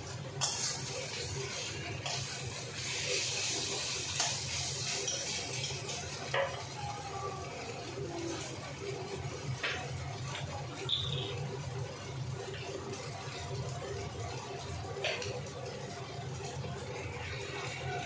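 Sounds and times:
meat sizzling: 0.0s - 18.0s
metal spatula scraping wok: 0.4s - 5.7s.

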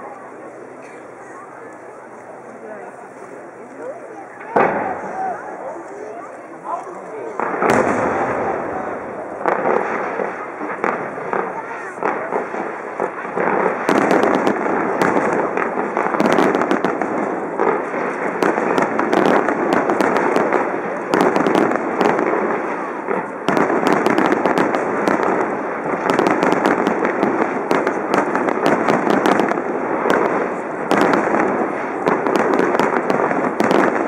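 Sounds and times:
fireworks bursting: 1.8s - 34.0s
crackle of sharp pops: 9.2s - 34.0s.

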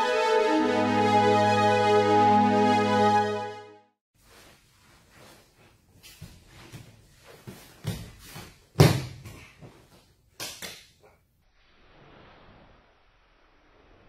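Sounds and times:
grapplers scuffling on mats: 4.2s - 10.1s
body thumping on mat: 6.1s - 9.5s.

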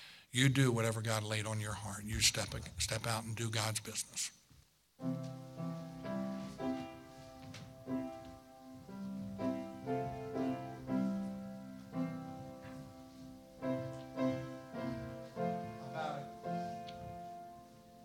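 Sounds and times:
piano playing slow hymn: 5.0s - 18.0s.

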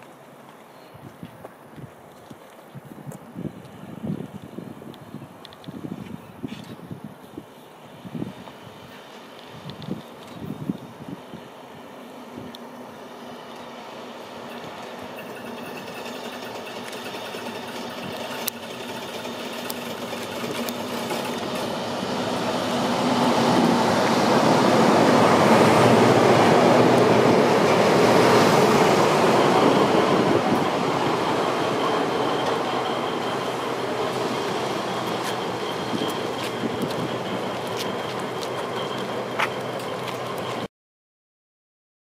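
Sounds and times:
train wheels on rails: 0.0s - 40.7s
locomotive engine drone: 7.8s - 40.7s.

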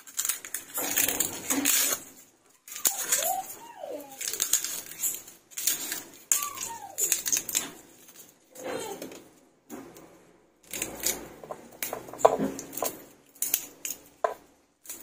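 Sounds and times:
garlic skin crackling and tearing: 0.0s - 8.3s, 10.6s - 14.2s.

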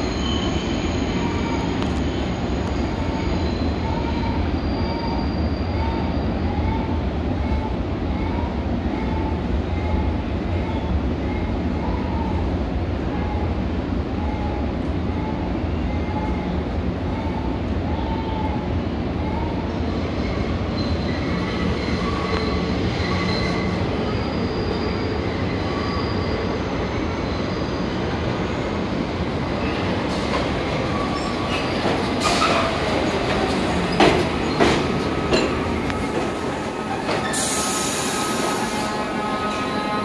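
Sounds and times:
subway train rumbling: 0.0s - 40.0s.

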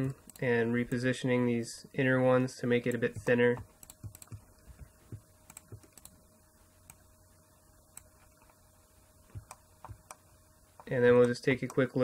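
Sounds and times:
computer keyboard clicks: 3.2s - 4.4s.

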